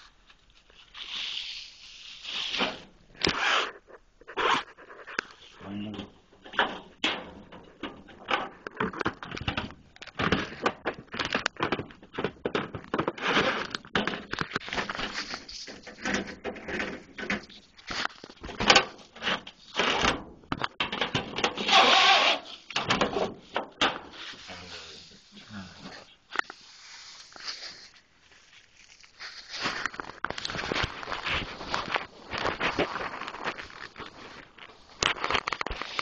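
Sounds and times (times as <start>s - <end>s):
fabric rustling: 26.6s - 36.0s.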